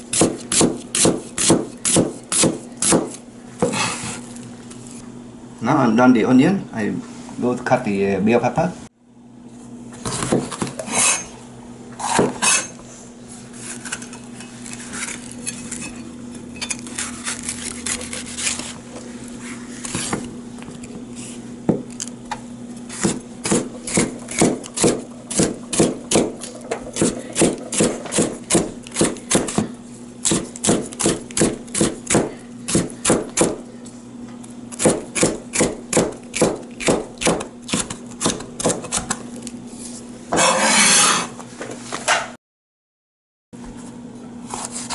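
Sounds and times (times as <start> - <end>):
knife chopping on plastic board: 0.1 - 3.8, 22.9 - 26.3, 27.0 - 33.6, 34.8 - 39.2.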